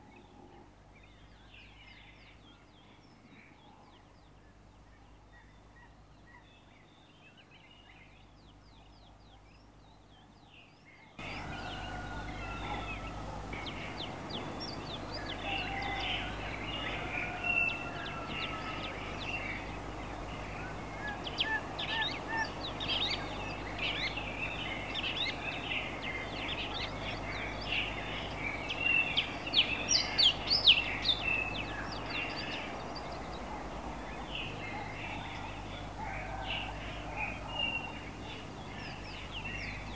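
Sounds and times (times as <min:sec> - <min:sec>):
small birds chirping: 0:00.0 - 0:39.9
steady low hum: 0:11.2 - 0:39.9.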